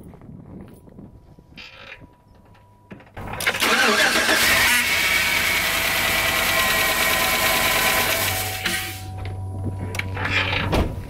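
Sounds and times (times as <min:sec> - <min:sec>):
truck engine cranking and idling: 0:02.6 - 0:11.0.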